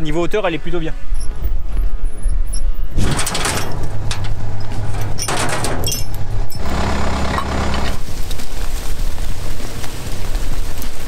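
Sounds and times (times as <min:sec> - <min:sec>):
tractor engine idling: 0:03.3 - 0:10.4.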